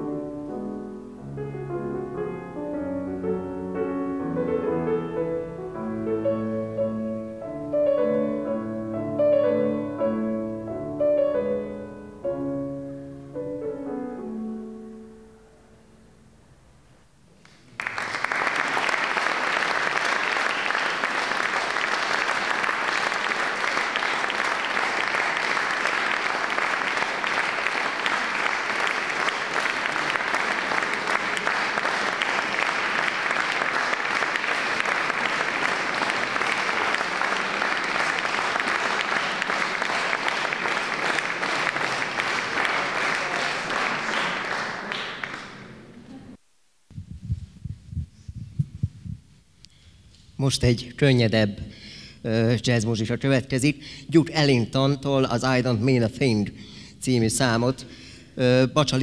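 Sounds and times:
audience applauding: 17.4s - 46.3s.

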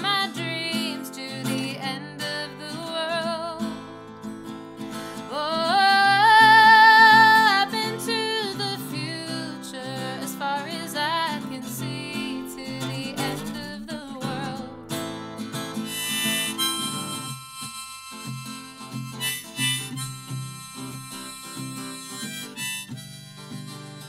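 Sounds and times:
woman singing: 0.0s - 3.9s, 5.3s - 14.9s
acoustic guitar strumming: 0.0s - 24.0s
harmonica held tones: 4.2s - 8.2s, 15.7s - 24.0s.

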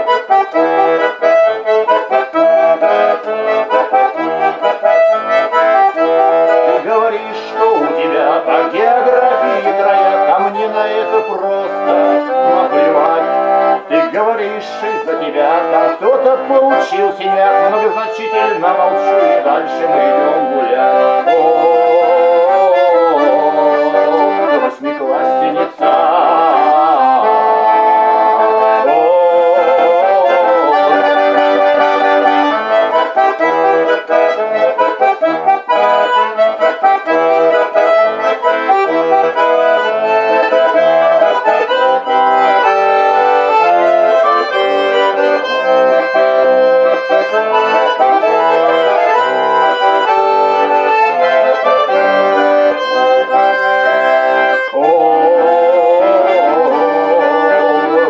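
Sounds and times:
button accordion playing: 0.0s - 58.0s.

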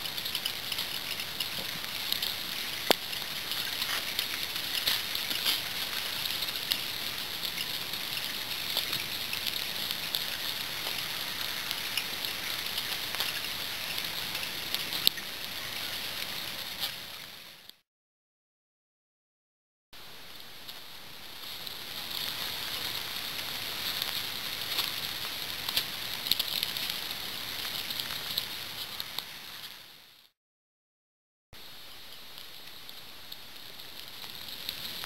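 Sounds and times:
light rain pattering on leaves: 0.0s - 17.8s, 20.0s - 30.3s, 31.6s - 35.0s.

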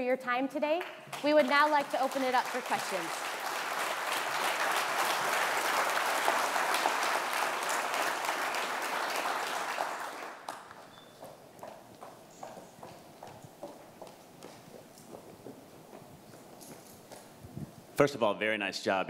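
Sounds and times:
audience applauding: 1.1s - 11.0s.

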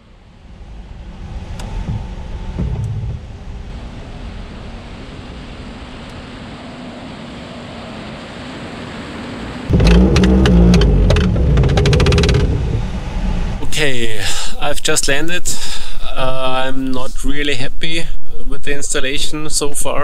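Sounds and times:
glider airflow rushing: 0.0s - 14.8s
low rumble with crackling: 0.0s - 20.0s.

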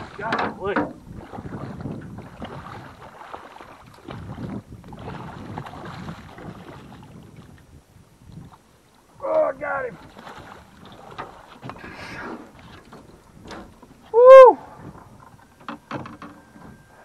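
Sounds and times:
waves slapping boat hull: 0.0s - 17.0s
wind on microphone: 0.0s - 17.0s.

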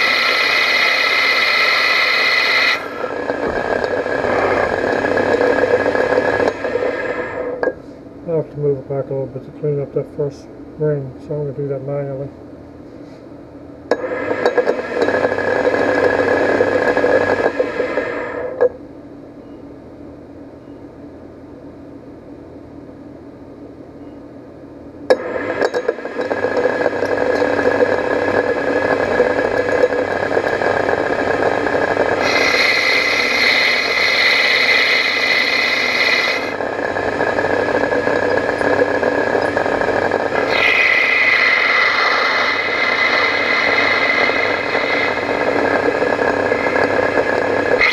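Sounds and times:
lathe spindle humming: 0.0s - 7.8s, 14.0s - 18.6s, 25.1s - 47.9s
high-pitched whine: 0.0s - 12.3s, 25.1s - 47.9s.

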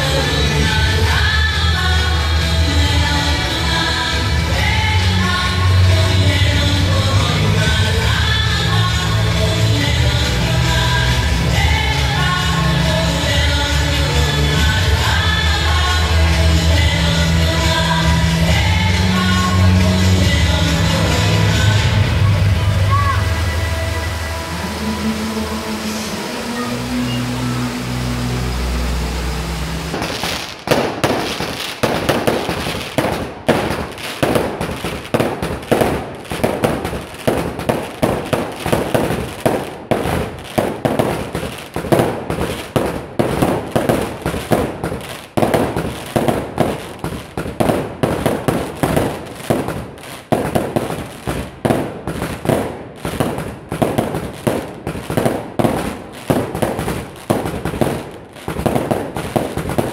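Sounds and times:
firecracker bangs: 29.9s - 59.9s.

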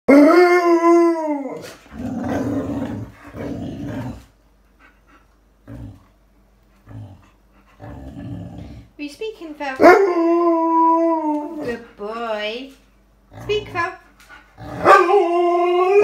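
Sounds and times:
dog howling: 0.1s - 3.0s, 9.8s - 11.8s, 14.7s - 16.0s
dog growling grumbles: 1.9s - 4.3s, 5.6s - 6.2s, 6.8s - 9.0s, 13.3s - 13.9s, 14.5s - 14.9s.

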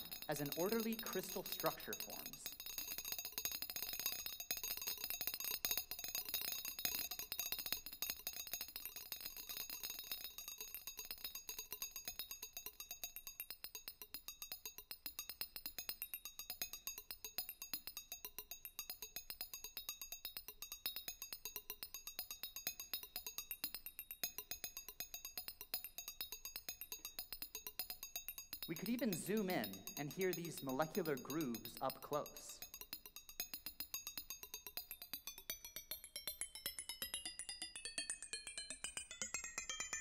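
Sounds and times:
high chiming clicks: 0.0s - 3.1s, 28.5s - 40.0s.

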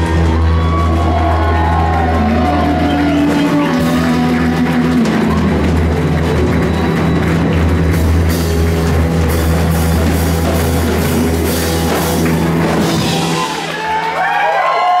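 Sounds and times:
rock band playing live: 0.0s - 14.7s.

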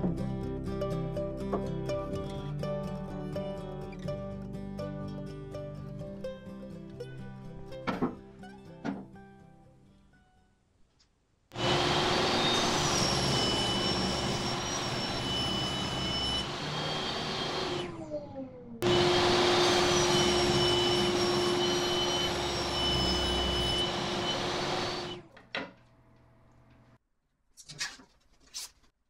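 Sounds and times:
saw blade winding down: 11.6s - 25.2s.

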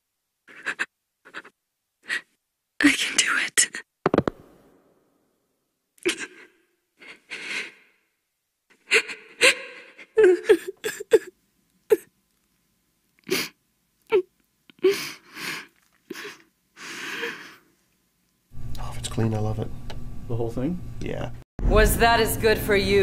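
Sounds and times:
woman sobbing: 0.5s - 2.3s, 6.0s - 7.9s, 8.7s - 12.1s, 13.2s - 17.7s.

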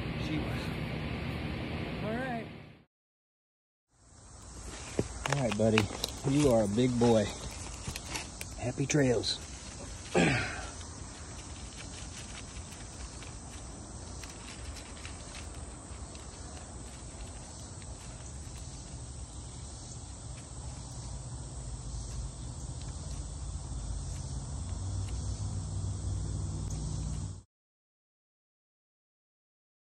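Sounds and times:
night insects chirring: 3.9s - 27.4s
rustling in leaf litter: 4.4s - 21.7s.

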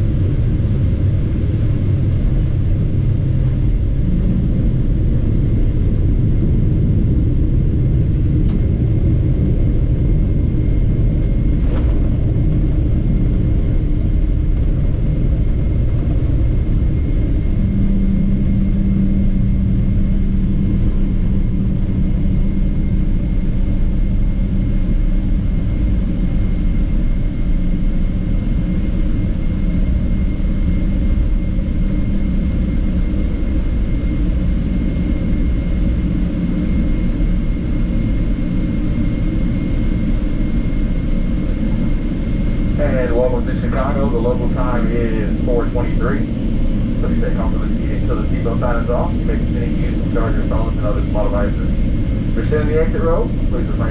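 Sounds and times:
steady hum: 0.0s - 53.9s
engines and wheels rumbling: 8.0s - 22.0s.

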